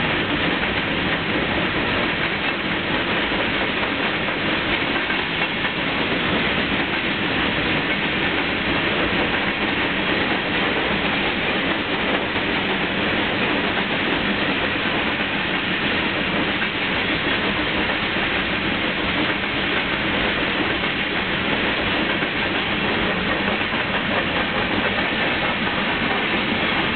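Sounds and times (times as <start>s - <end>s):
train wheels rolling on rails: 0.0s - 26.9s.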